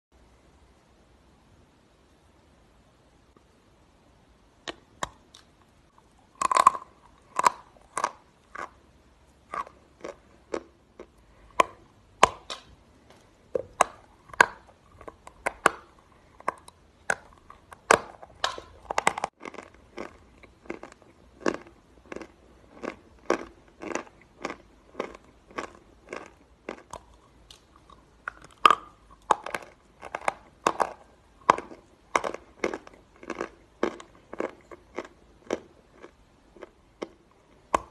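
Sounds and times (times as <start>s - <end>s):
chalk crunching when chewed: 9.5s - 12.7s, 13.6s - 37.2s.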